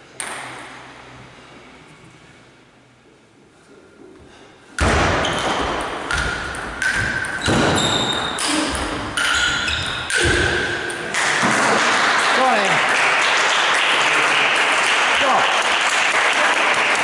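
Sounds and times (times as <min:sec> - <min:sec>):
table tennis ball hits: 0:00.2 - 0:00.9, 0:04.8 - 0:12.6.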